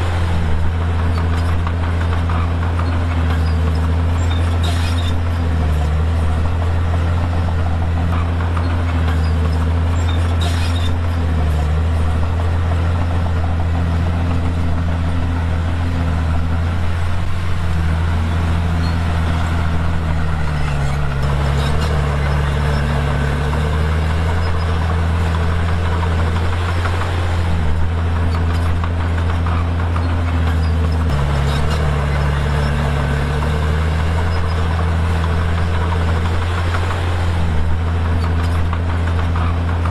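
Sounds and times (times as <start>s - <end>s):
bulldozer diesel engine under load: 0.0s - 39.9s.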